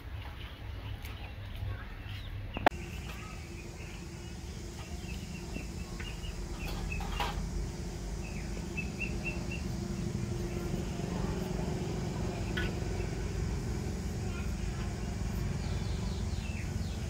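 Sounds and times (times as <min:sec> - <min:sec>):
faint hum: 0:00.0 - 0:17.0
low rumble: 0:02.6 - 0:17.0
bird chirping high notes: 0:02.7 - 0:13.4.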